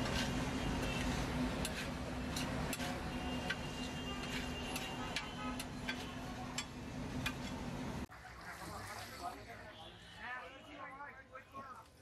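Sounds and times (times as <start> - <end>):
metal spatula scraping griddle: 0.0 - 7.6.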